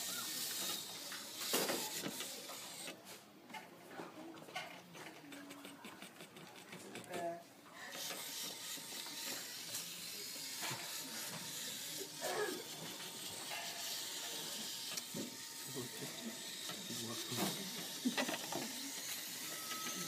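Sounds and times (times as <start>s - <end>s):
small motors whirring: 0.0s - 3.0s, 5.1s - 20.0s.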